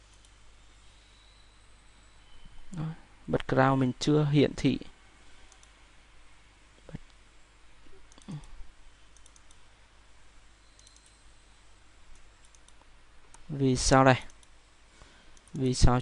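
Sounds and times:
faint computer mouse clicks: 5.5 - 5.8, 8.1 - 9.6, 10.6 - 11.2, 12.1 - 13.5, 14.2 - 14.6, 15.3 - 15.7.

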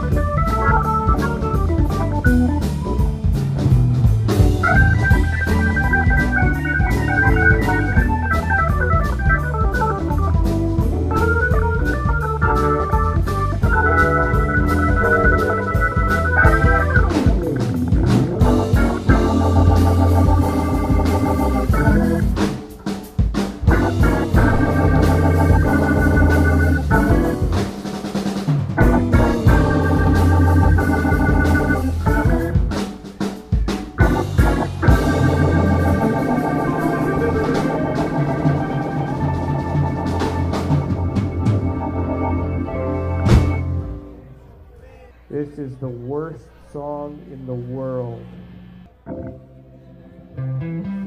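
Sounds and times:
electric guitar: 0.0 - 44.4, 48.1 - 51.0
bass guitar: 0.0 - 44.7, 46.7 - 51.0
drums: 0.0 - 49.4
organ keyboard chords: 0.0 - 51.0.

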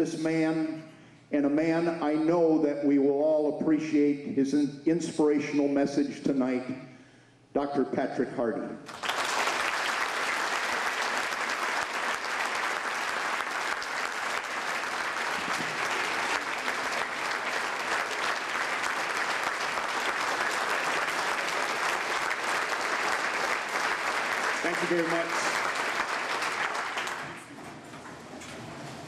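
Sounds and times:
audience applauding: 8.9 - 27.5.

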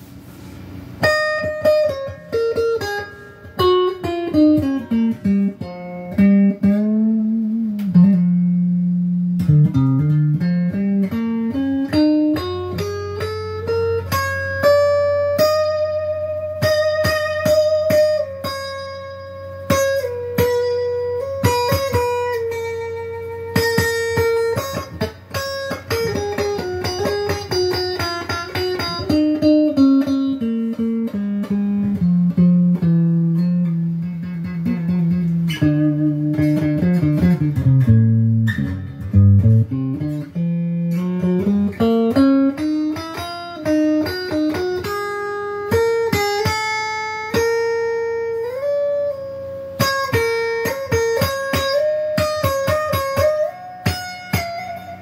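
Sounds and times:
clean electric guitar notes: 0.2 - 55.0.

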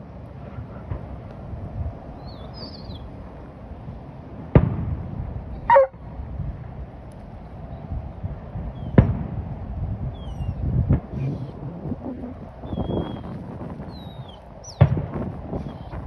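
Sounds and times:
steady background noise: 0.0 - 16.0
distant firework boom: 4.5 - 5.3, 8.8 - 9.4, 13.6 - 16.0.

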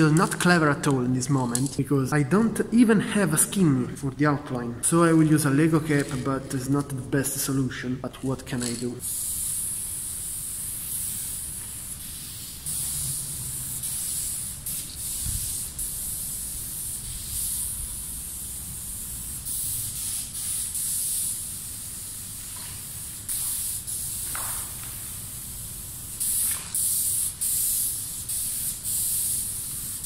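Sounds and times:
spray paint can hissing: 8.6 - 30.0.

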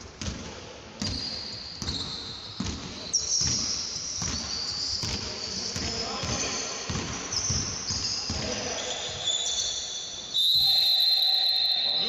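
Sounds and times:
basketball bouncing on hardwood: 0.2 - 8.6.

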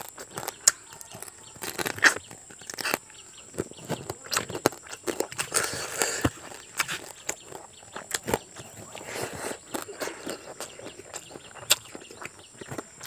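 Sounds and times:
man chewing food: 0.0 - 13.0
wet mouth clicks and smacks: 9.7 - 12.8.

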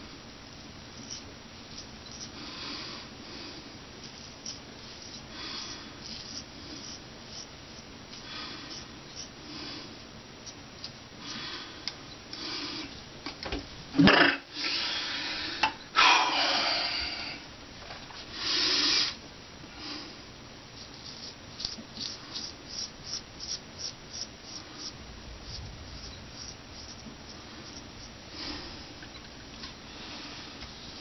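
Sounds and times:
razor scraping beard: 1.0 - 2.4, 4.1 - 9.4, 20.8 - 28.2.

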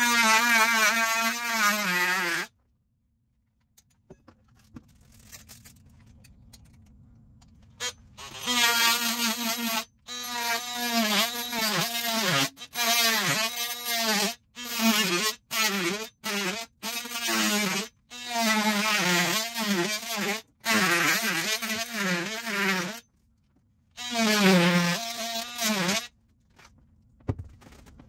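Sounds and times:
multi-tool cutting plaster: 0.0 - 2.6, 7.8 - 23.1, 23.9 - 26.1.

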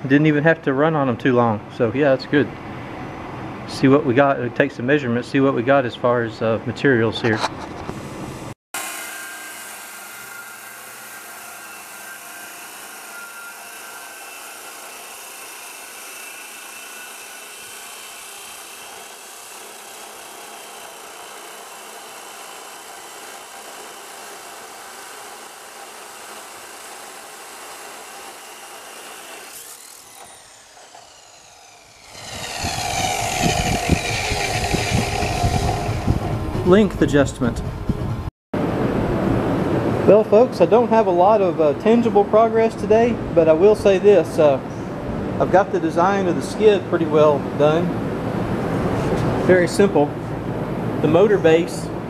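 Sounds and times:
chop saw cutting steel: 8.8 - 36.9
motor winding down: 15.6 - 37.9
loud noise: 29.7 - 37.0.

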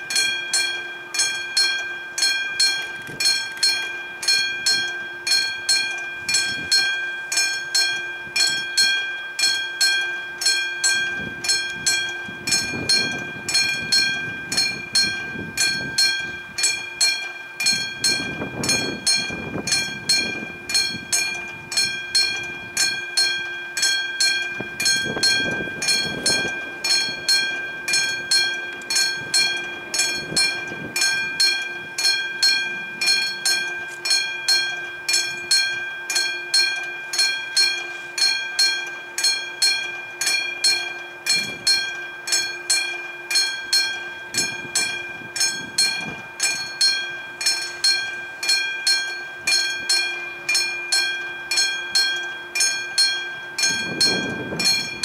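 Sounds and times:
level crossing bell ringing: 0.0 - 55.0.

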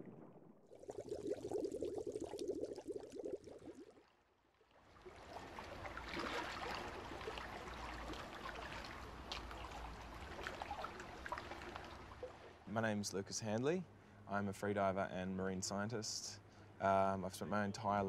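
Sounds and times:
underwater bubbling: 0.0 - 4.2
water lapping and dripping: 0.0 - 12.7
small splashes and clicks: 5.8 - 12.4.

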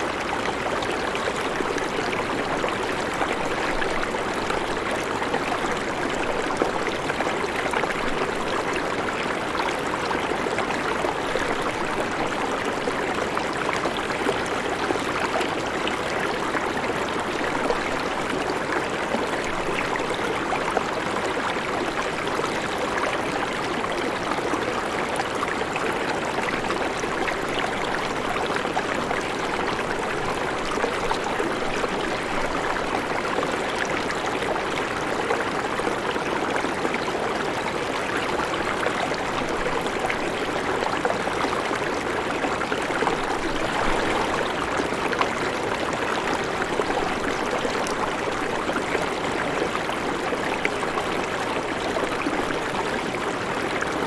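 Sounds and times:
river rushing over rocks: 43.0 - 45.0.

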